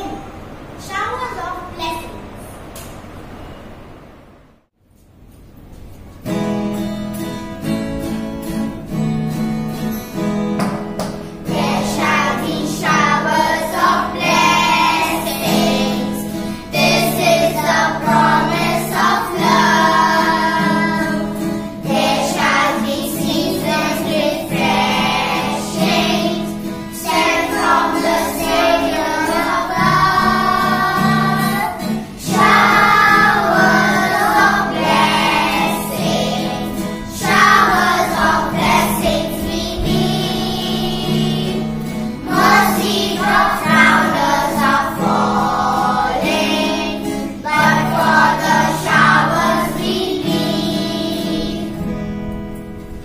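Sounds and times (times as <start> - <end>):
strummed acoustic guitar: 5.3 - 53.0
girls singing in unison: 11.4 - 51.9.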